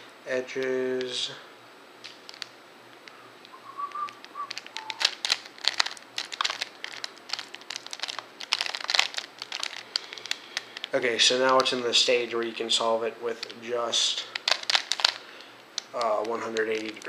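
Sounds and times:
puzzle cube layers clicking: 3.9s - 6.6s.

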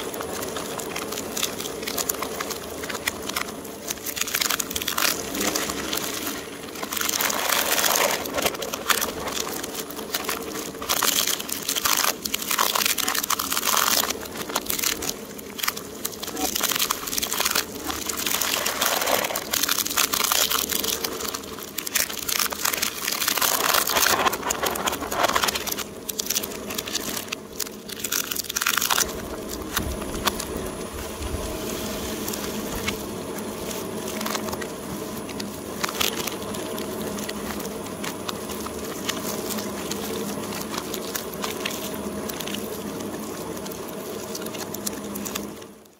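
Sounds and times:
shredder crushing plastic: 0.0s - 31.5s.

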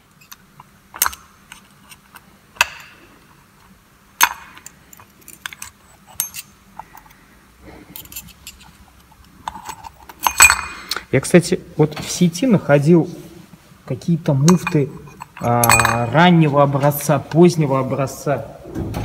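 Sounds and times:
steel parts clinking: 0.1s - 3.0s, 4.2s - 7.2s, 7.9s - 11.1s, 14.4s - 16.3s.

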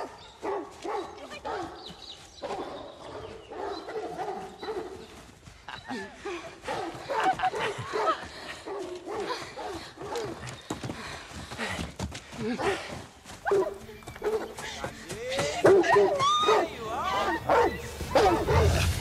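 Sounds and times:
hounds barking and yelping: 0.0s - 5.3s, 6.6s - 10.7s, 13.4s - 14.8s, 15.6s - 19.0s.

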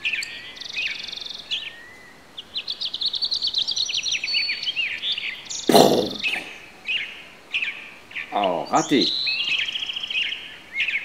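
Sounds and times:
birds singing: 0.0s - 11.0s.

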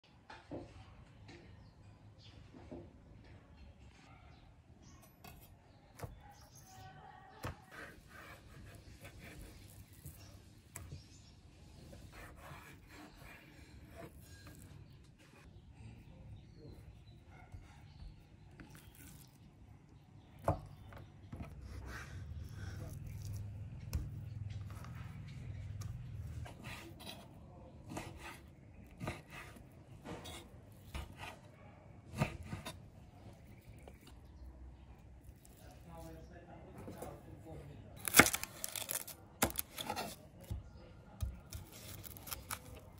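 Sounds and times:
knife slicing meat: 11.9s - 14.7s, 27.9s - 31.4s, 38.0s - 40.6s, 41.2s - 42.9s.

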